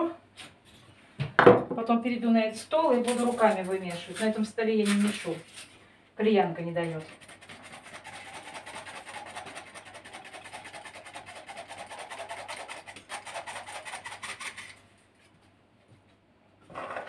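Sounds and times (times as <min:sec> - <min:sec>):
flour sifter rasping: 0:06.6 - 0:15.4.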